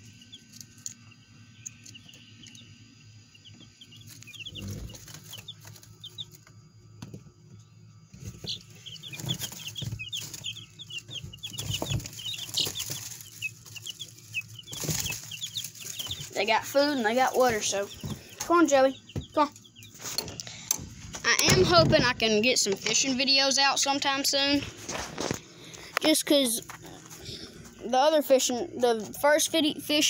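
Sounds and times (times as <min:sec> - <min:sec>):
chicks peeping: 0:00.0 - 0:30.0
plastic tub bumps and rustles: 0:08.1 - 0:13.4.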